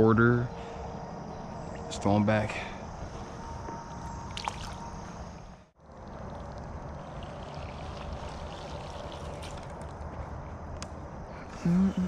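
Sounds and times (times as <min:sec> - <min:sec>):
creek water trickling: 0:03.9 - 0:10.4
small splashes in water: 0:04.3 - 0:04.8, 0:06.0 - 0:10.0.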